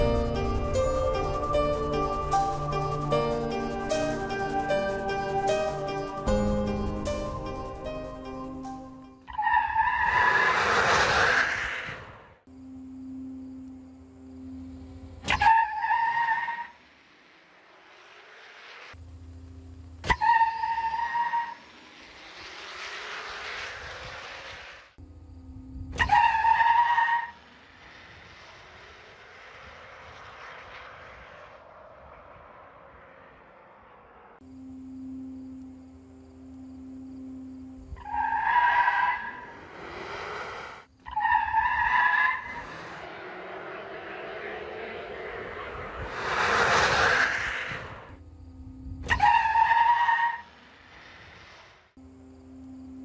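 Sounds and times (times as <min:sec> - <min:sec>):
high-pitched electric drivetrain whine: 0:34.4 - 0:39.4
tyre and wind noise: 0:45.4 - 0:48.2.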